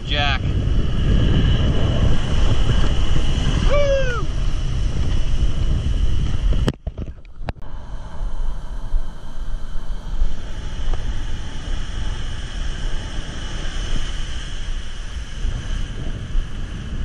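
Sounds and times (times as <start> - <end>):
surf breaking on beach: 0.0 - 6.6, 9.6 - 17.0
wind buffeting microphone: 0.0 - 17.0
short falling cry: 3.6 - 4.4.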